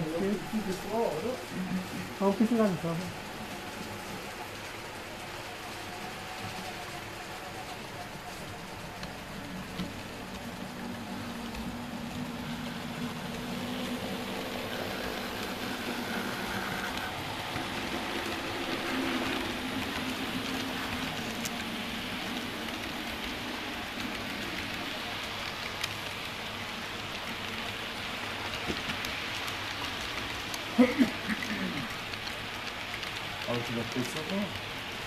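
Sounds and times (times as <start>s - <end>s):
model train wheels rattling: 7.6s - 35.0s.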